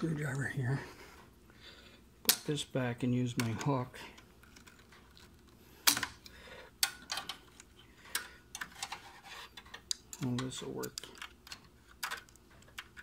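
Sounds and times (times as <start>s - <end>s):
metal tools clicking and scraping: 6.8s - 13.0s.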